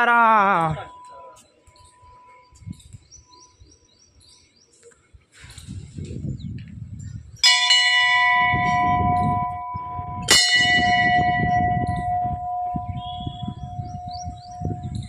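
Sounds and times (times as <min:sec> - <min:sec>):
temple bells ringing: 0:00.0 - 0:02.7, 0:07.4 - 0:15.0
low rumble: 0:08.6 - 0:15.0.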